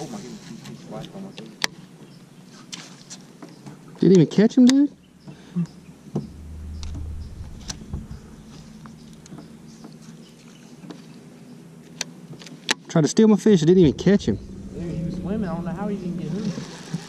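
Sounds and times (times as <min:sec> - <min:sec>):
low hum: 0:06.1 - 0:10.4, 0:13.6 - 0:17.0.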